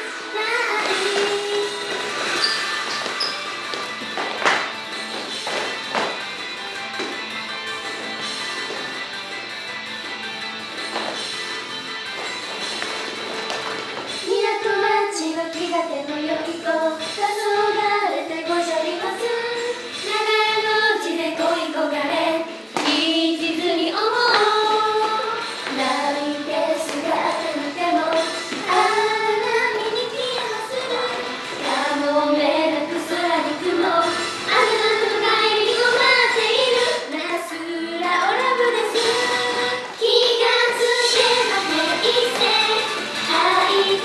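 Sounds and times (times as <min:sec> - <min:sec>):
young female voices singing: 0:00.0 - 0:02.2, 0:14.2 - 0:44.0
pop backing track: 0:00.0 - 0:44.0.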